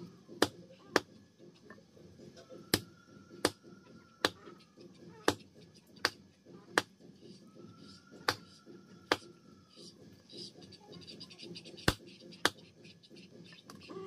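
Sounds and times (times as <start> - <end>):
knife chopping meat and bone: 0.3 - 1.2, 2.7 - 7.1, 7.8 - 9.4, 11.4 - 12.9.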